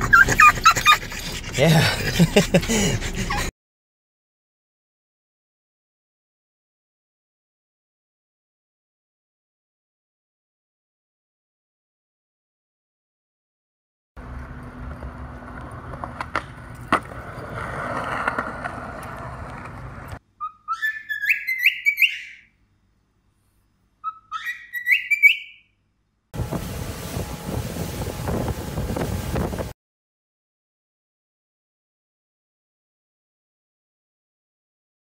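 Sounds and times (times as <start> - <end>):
skateboard wheels on concrete: 14.2 - 20.2
cockatiel whistling: 20.4 - 22.5, 24.0 - 25.6
motorboat engine: 26.4 - 29.7.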